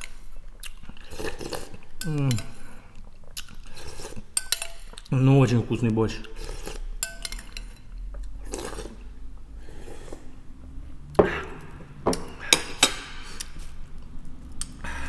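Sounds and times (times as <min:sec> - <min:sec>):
metal spoon clinking against bowl: 0:04.4 - 0:04.9, 0:07.0 - 0:07.9.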